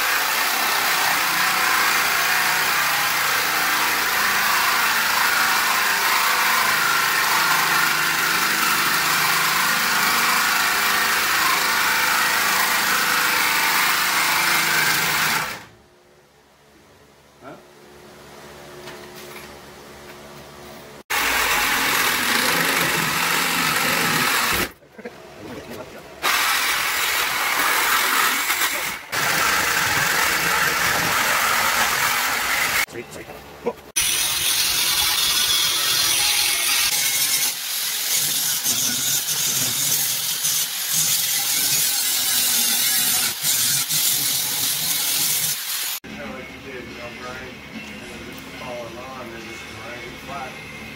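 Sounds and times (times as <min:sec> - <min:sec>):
angle grinder cutting steel: 0:00.0 - 0:15.6, 0:21.1 - 0:24.8, 0:26.2 - 0:32.9, 0:34.0 - 0:46.0
saw motor whining: 0:21.1 - 0:24.8
saw blade rasping through metal: 0:34.0 - 0:46.0.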